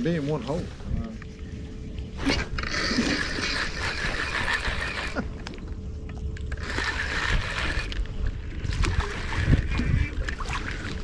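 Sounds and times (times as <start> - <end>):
low steady rumble: 0.0 - 11.0
fishing reel gears whirring: 2.2 - 5.4, 6.4 - 11.0.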